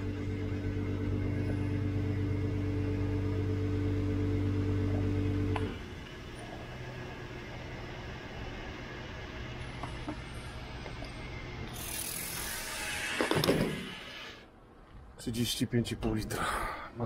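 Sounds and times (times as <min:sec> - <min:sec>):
fuel pump humming: 0:00.0 - 0:13.4.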